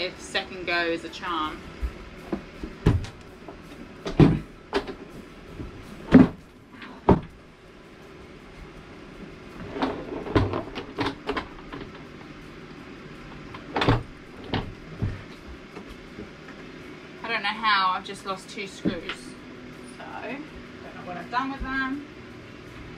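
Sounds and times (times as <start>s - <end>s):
wooden knocks and bumps: 2.3s - 3.2s, 4.0s - 5.0s.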